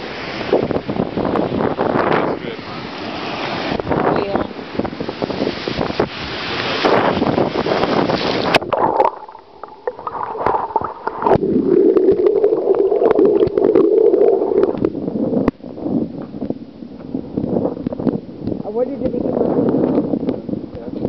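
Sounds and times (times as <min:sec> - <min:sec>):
steady low underwater rush: 0:00.0 - 0:20.8
wind and surf: 0:00.0 - 0:21.0
muffled underwater sloshing: 0:08.0 - 0:18.2.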